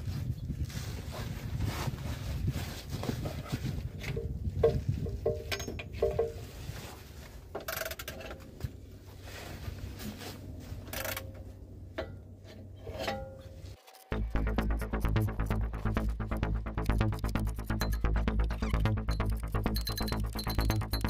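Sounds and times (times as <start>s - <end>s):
wind rumble on microphone: 0.0s - 7.2s.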